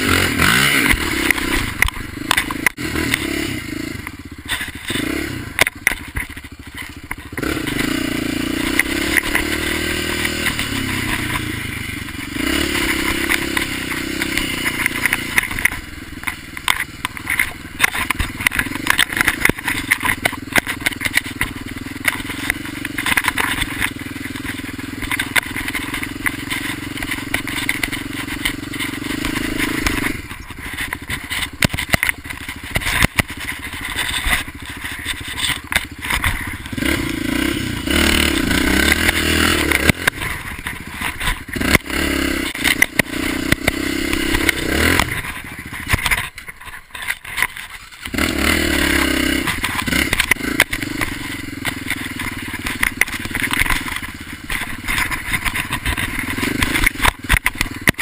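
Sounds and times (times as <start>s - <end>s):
dirt bike engine revving: 0.0s - 58.0s.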